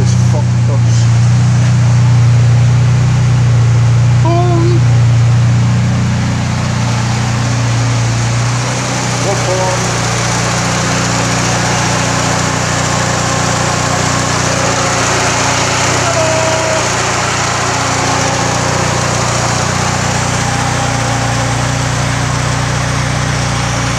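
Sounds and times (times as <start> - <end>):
car engine idling: 0.0 - 23.9.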